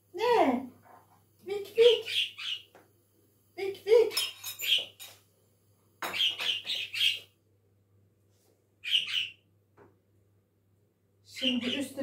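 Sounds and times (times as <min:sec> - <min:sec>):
bird chirping: 0:01.8 - 0:02.8, 0:04.2 - 0:05.1, 0:06.0 - 0:07.3, 0:08.8 - 0:09.5.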